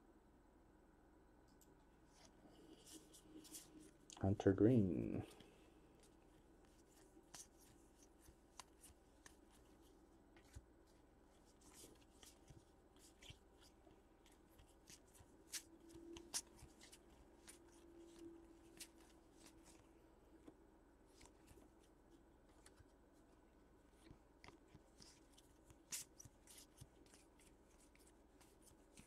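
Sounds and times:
trading cards rustling: 5.1 - 19.8, 23.9 - 29.0.

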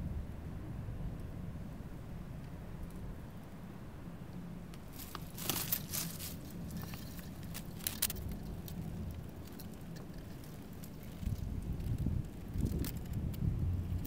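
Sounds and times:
pine needles crackling on camera: 4.7 - 14.0.

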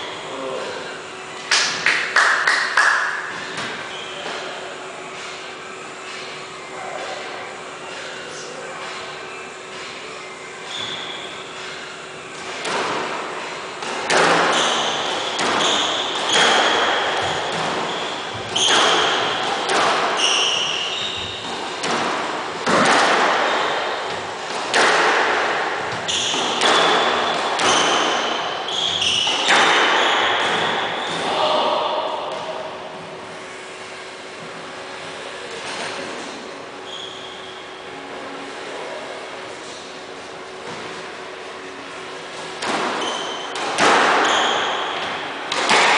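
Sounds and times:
squash ball hitting rackets and walls: 1.5 - 4.6, 12.4 - 33.1, 42.4 - 45.9
shoes squeaking on wooden floor: 20.2 - 21.5.

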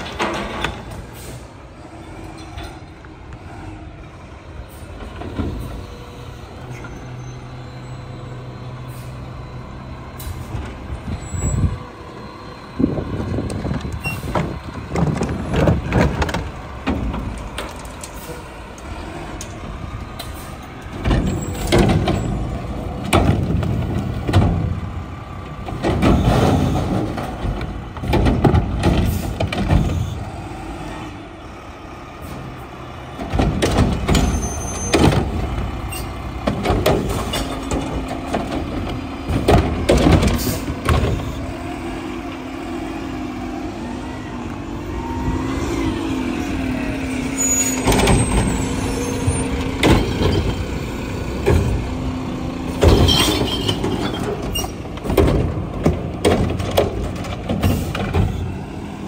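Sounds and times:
bangs and clanks of bin: 0.0 - 1.1, 21.0 - 22.4, 23.0 - 24.9, 25.6 - 30.1, 33.2 - 35.7, 36.4 - 41.3, 52.7 - 58.5
diesel engine running: 0.0 - 59.0.

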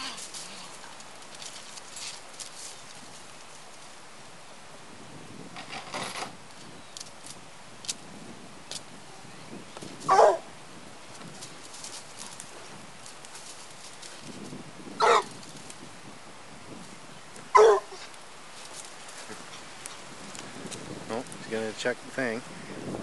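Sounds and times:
dog barking: 10.1 - 10.5, 15.0 - 15.3, 17.5 - 18.0.

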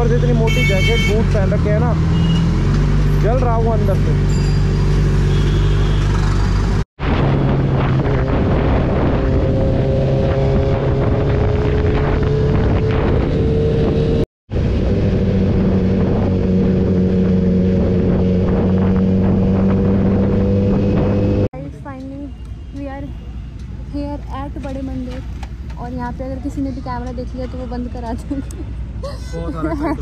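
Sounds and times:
wind on microphone: 7.0 - 21.5.

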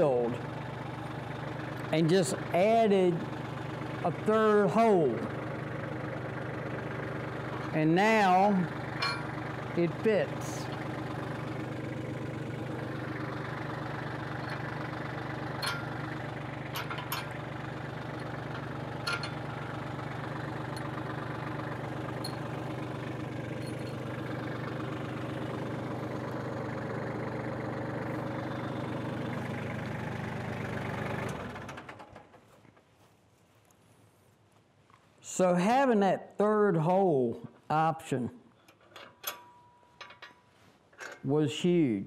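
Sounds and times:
tractor engine idling: 0.0 - 33.6.

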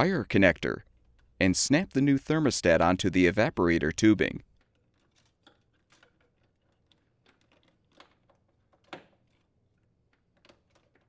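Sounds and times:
faint clicks of parts handled: 4.5 - 11.0.

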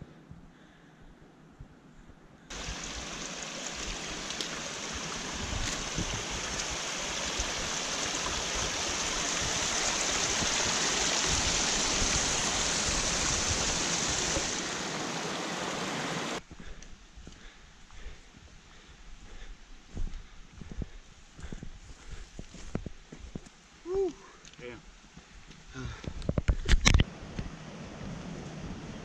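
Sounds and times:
creek cascading over rocks: 2.5 - 16.4.

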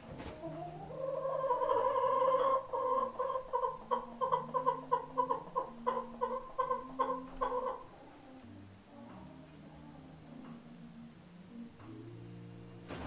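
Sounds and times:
hen clucking: 0.1 - 8.5.

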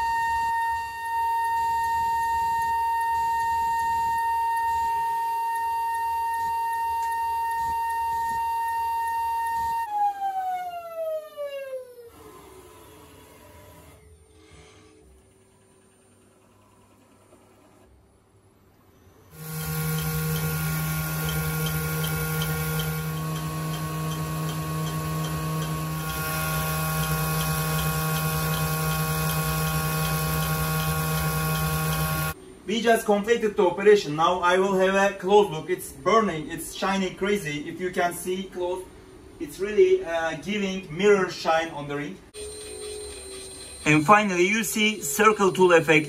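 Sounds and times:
machine electric hum: 0.0 - 33.7
high spindle whine: 19.2 - 32.4, 42.4 - 46.0.

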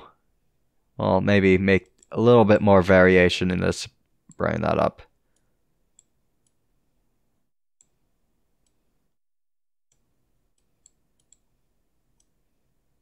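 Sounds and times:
computer mouse clicks: 5.4 - 6.6, 9.9 - 11.5, 12.1 - 12.4.

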